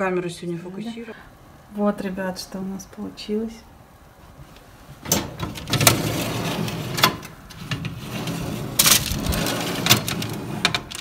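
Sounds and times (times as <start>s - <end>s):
metal tray scraping on oven rack: 5.1s - 11.0s.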